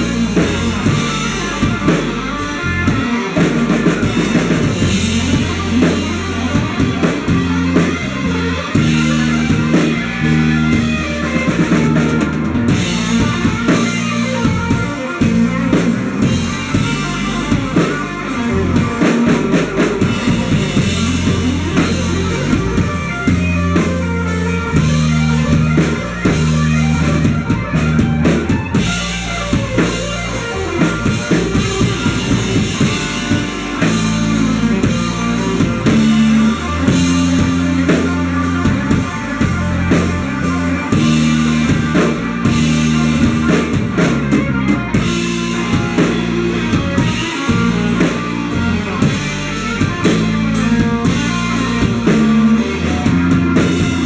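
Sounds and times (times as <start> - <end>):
bass guitar: 0.0 - 54.0
drum kit: 0.0 - 54.0
electric guitars: 0.0 - 54.0.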